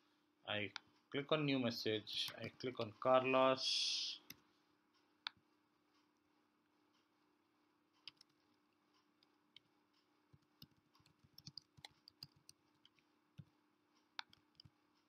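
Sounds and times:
faint keyboard typing: 2.0s - 4.4s, 8.0s - 15.0s.

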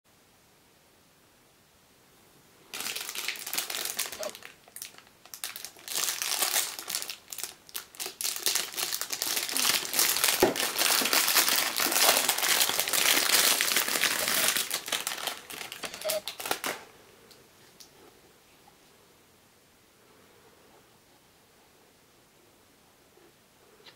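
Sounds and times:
cellophane crinkling: 2.7s - 16.9s.

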